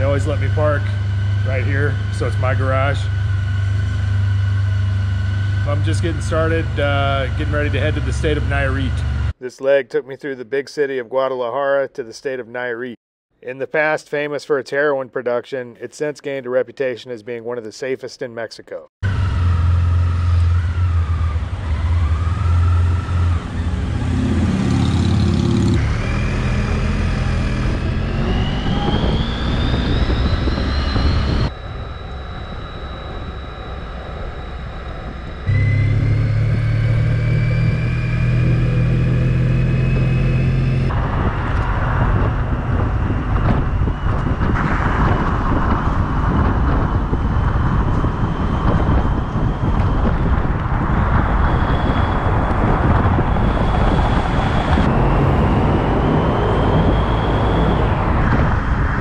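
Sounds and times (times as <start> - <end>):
motorcycle engine accelerating: 0.0 - 9.4, 19.0 - 59.0
wind noise on microphone: 20.3 - 59.0.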